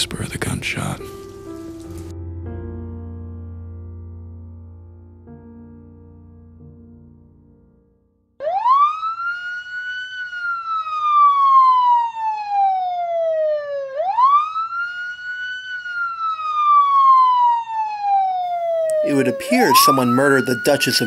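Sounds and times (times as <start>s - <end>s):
police siren wailing: 8.4s - 21.0s.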